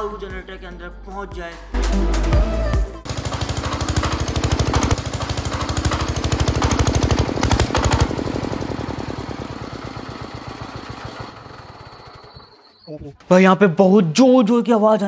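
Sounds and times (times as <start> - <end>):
diesel generator engine knocking: 3.1 - 12.7.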